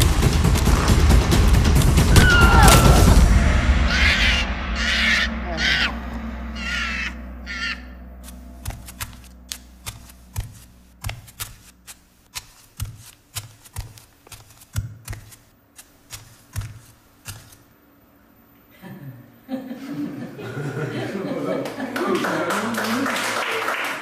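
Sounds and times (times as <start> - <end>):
short harsh calls: 3.8 - 9.5.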